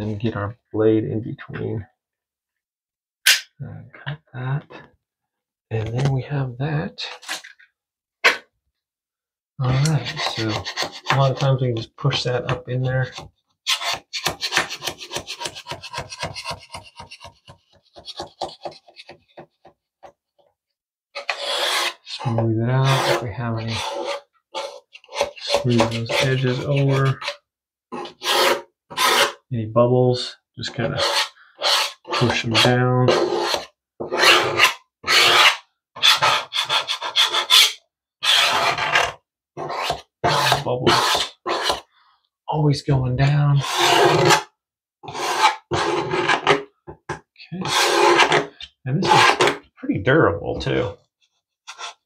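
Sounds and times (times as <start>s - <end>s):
plastic tool scraping window film: 23.9s - 27.4s.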